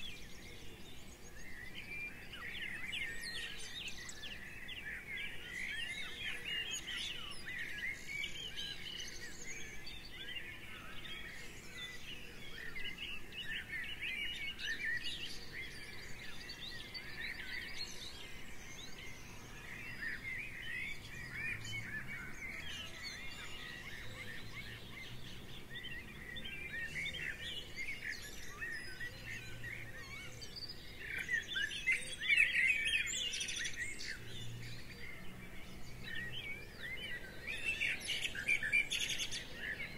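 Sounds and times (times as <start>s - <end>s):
birds chirping and singing: 0.0s - 39.9s.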